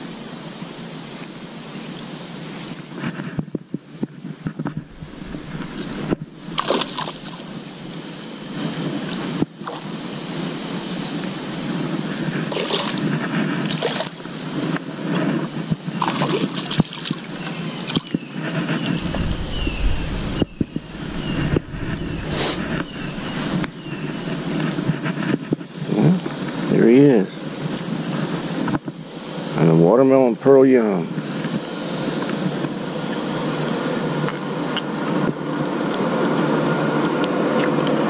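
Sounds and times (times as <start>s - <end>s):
fish splashing at surface: 4.7s - 8.0s, 12.5s - 14.2s, 16.0s - 17.2s.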